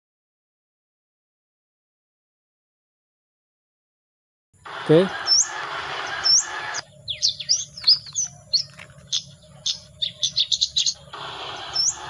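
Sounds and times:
chirps and trills: 0:04.6 - 0:12.0
speaker hiss: 0:04.7 - 0:06.8
whistled bird call from speaker: 0:04.7 - 0:12.0.

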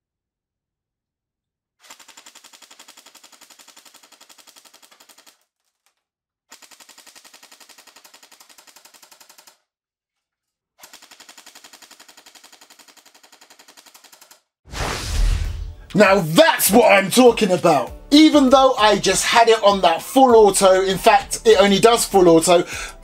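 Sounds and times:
airsoft gun firing full auto: 0:01.8 - 0:05.4, 0:06.5 - 0:09.6, 0:10.8 - 0:14.2.

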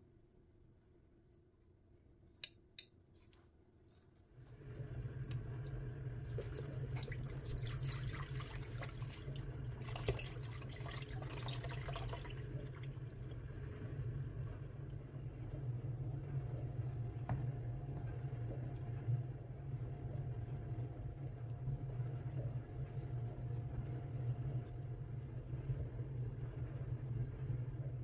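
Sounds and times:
liquid pouring into vessel: 0:04.7 - 0:15.6.

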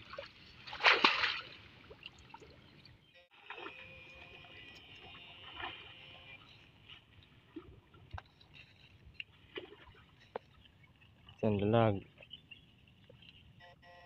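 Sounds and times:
water splashing and sloshing: 0:00.0 - 0:13.7
faint high whine: 0:03.1 - 0:07.0
rustling water plants: 0:03.4 - 0:13.6.

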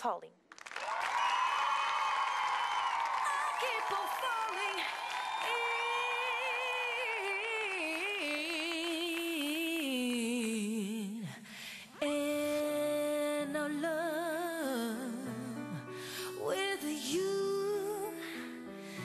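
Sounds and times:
woman singing wordless melody: 0:03.6 - 0:18.7.

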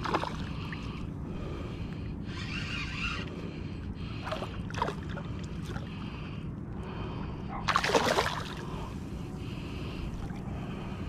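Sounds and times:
fish splashing in water: 0:07.6 - 0:08.8.

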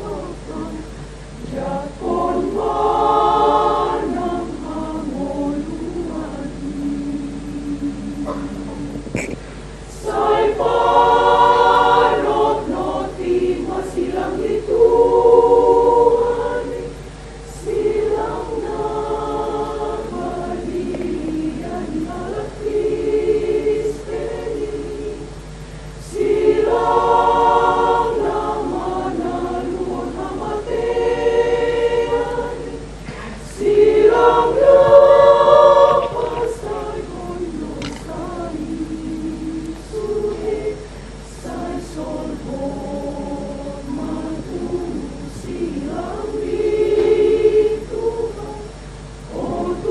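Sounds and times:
women's choir singing a hymn: 0:00.0 - 0:49.9
singers breathing: 0:08.3 - 0:09.9, 0:33.0 - 0:33.5.

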